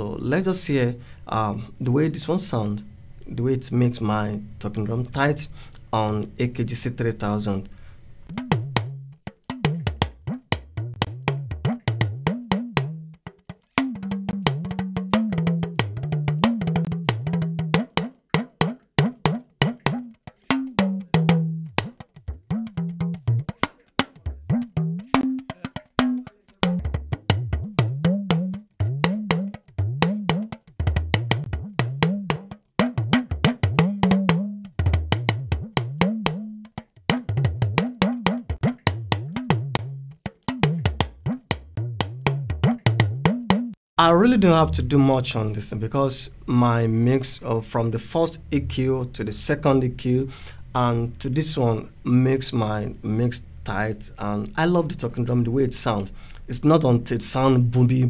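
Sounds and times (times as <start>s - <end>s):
talking drum strokes: 13.7s - 39.9s.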